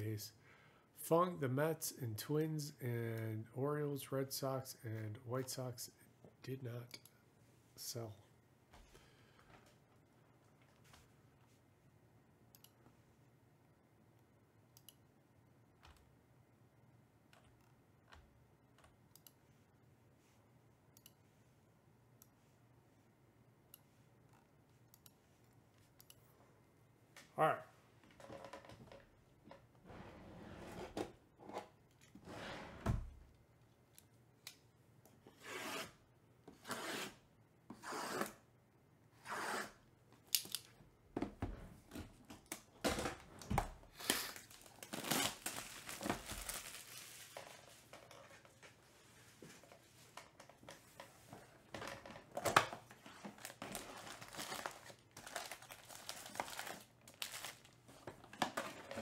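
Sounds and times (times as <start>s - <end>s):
plastic shrink-wrap tearing: 44.0s - 47.4s, 53.4s - 57.8s.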